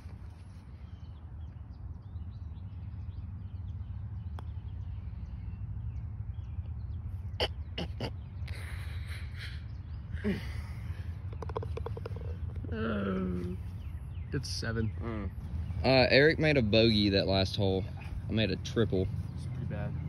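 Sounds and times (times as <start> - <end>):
putter striking golf ball: 11.3 - 12.6.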